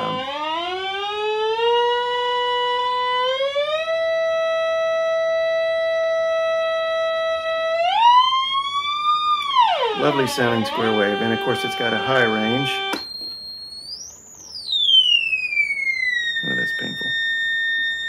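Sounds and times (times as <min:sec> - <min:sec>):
buzzy square-wave tone: 0:00.0 - 0:00.9, 0:03.8 - 0:18.0
person speaking: 0:09.9 - 0:12.9, 0:16.4 - 0:17.2.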